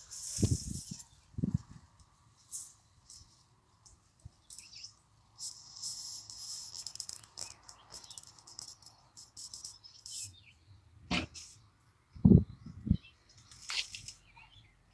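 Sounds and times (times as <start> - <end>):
dry weeds rustling and crackling: 0.0 - 4.8.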